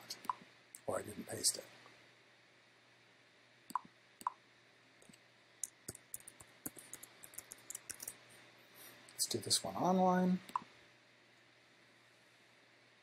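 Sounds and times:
faint keyboard typing: 0:05.0 - 0:08.2.

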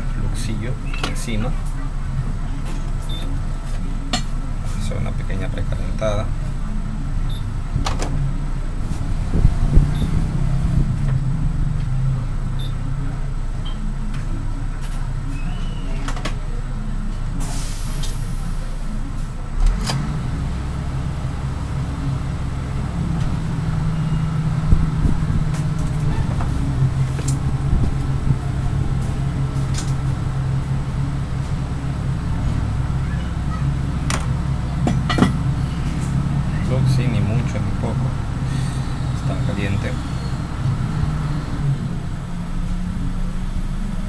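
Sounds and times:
hot air blower humming: 0:20.2 - 0:42.4.

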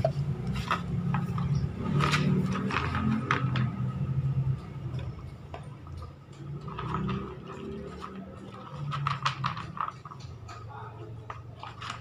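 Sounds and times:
pellets pushed in plastic bowl: 0:00.0 - 0:04.1, 0:06.4 - 0:10.6, 0:11.2 - 0:12.0
dog crunching dry kibble: 0:00.2 - 0:04.1, 0:05.8 - 0:12.0.

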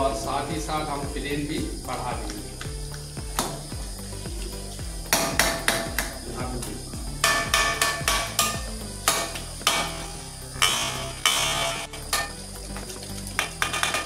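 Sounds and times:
soft background music: 0:00.0 - 0:14.0
metal ladle scraping metal pot: 0:07.2 - 0:12.4, 0:13.0 - 0:14.0.

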